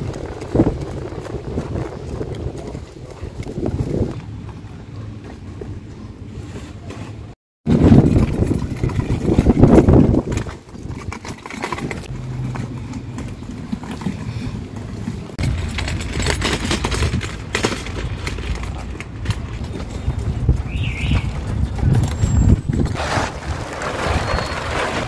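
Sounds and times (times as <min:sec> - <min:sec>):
wagon wheels rattling on gravel: 0:00.0 - 0:05.6, 0:06.4 - 0:25.0.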